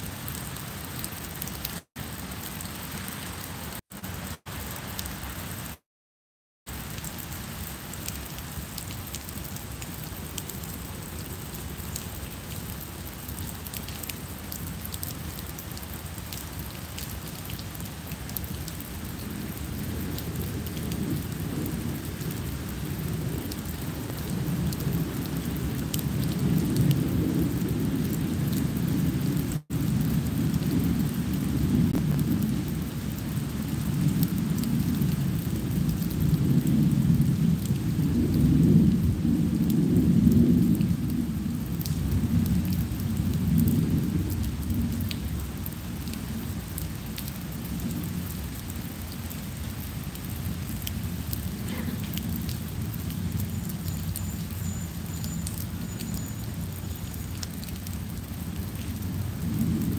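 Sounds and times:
rain on paving and foliage: 0.0 - 5.8, 6.7 - 59.9
rumble of thunder: 19.0 - 49.1, 57.6 - 59.9.

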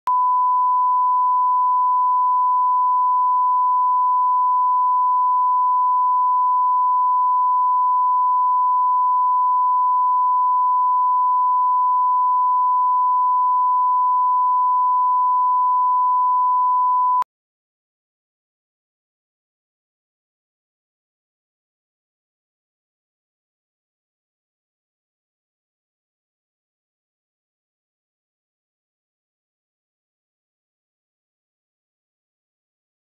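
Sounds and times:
steady pure test tone beep: 0.1 - 17.3.

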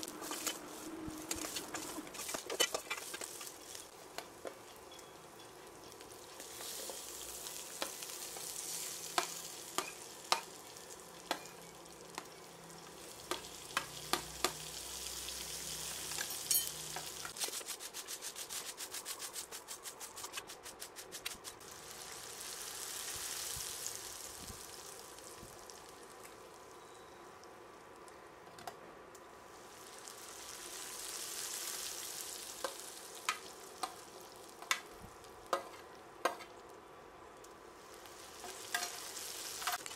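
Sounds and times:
onion and tomato frying in oil: 0.0 - 19.5, 20.3 - 27.5, 29.3 - 36.8, 37.6 - 39.9.

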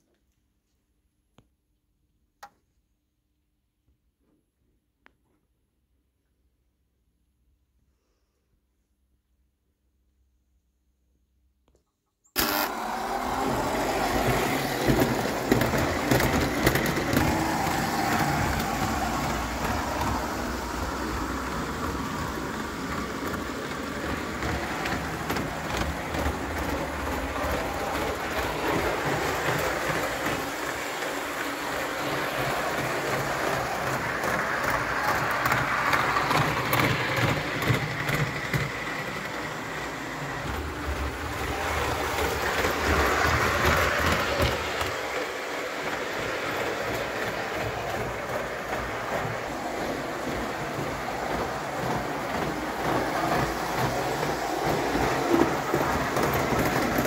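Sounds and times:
toy train running on track: 12.4 - 57.0.

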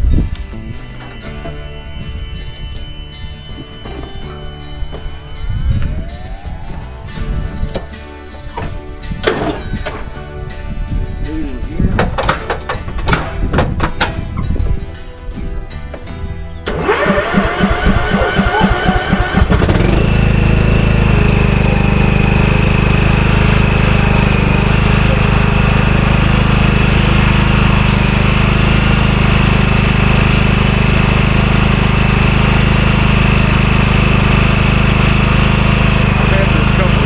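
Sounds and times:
lawn mower engine running: 0.0 - 11.2, 11.9 - 37.0
high whine: 0.0 - 12.0, 14.4 - 37.0
lawn mower engine cranking: 12.0 - 14.8, 16.6 - 37.0.

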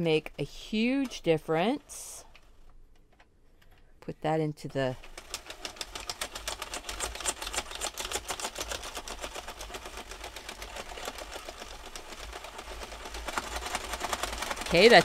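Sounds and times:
knitting machine needles clicking: 4.7 - 15.0.

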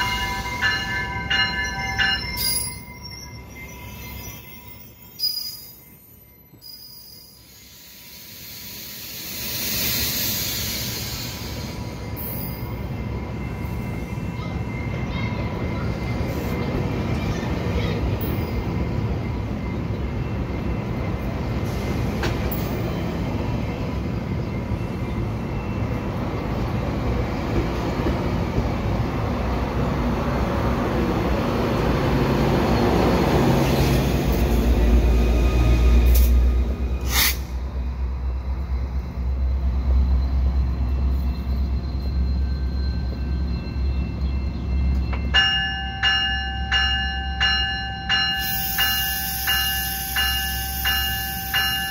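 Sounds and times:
bell ringing: 0.0 - 6.2, 44.5 - 51.9
train wheels rumbling on rail: 7.4 - 51.9.

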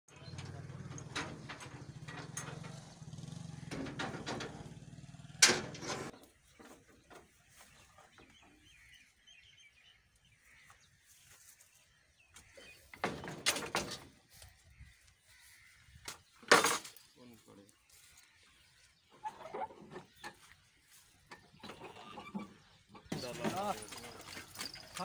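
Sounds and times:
truck engine idling: 0.1 - 6.1.

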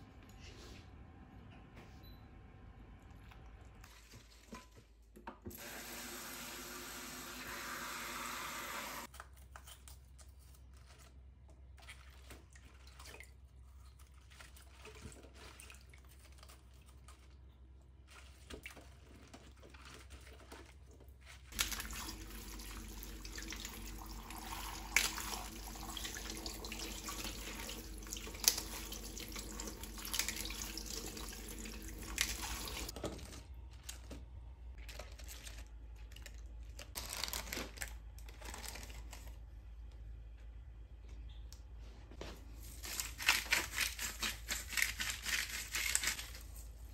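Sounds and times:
water sloshing and splashing: 10.9 - 33.0.

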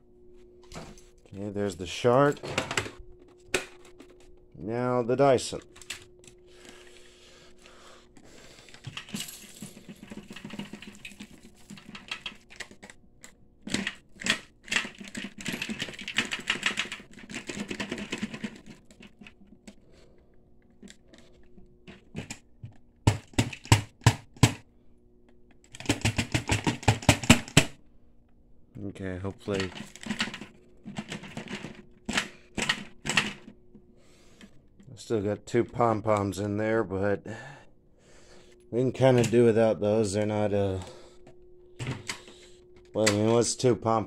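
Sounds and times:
plastic bin clicks and knocks: 21.9 - 24.6, 25.8 - 27.8.

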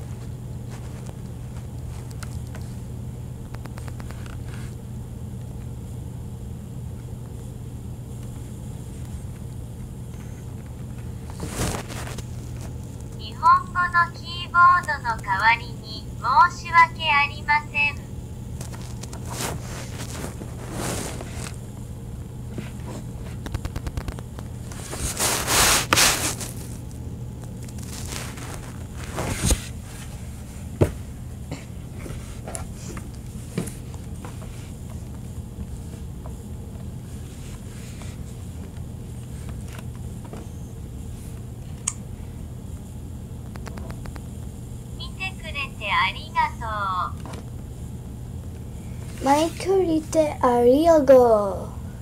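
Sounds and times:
steady low hum: 0.0 - 52.0
scraping rustle: 18.8 - 21.6, 24.7 - 26.8, 27.8 - 30.6.

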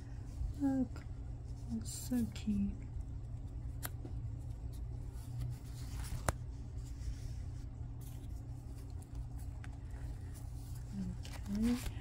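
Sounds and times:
low steady hum: 0.0 - 12.0
cellophane bag rustling: 8.2 - 12.0.

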